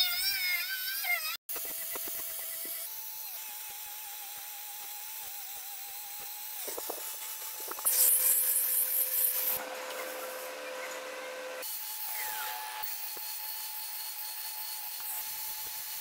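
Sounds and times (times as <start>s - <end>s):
angle grinder whine: 0.0s - 16.0s
sanding disc hissing on wood: 1.5s - 10.6s.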